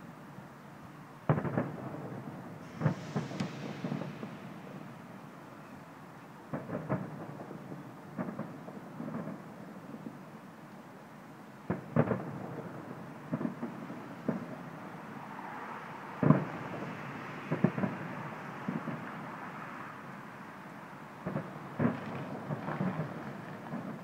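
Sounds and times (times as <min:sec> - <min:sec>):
steady background noise: 0:00.0 - 0:24.0
distant fireworks booms: 0:01.2 - 0:05.8, 0:06.4 - 0:10.2, 0:11.6 - 0:15.2, 0:16.1 - 0:19.6, 0:21.2 - 0:24.0.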